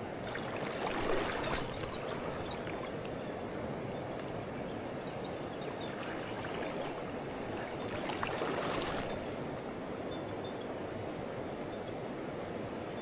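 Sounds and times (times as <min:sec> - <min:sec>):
river water rushing over rocks: 0:00.3 - 0:03.1.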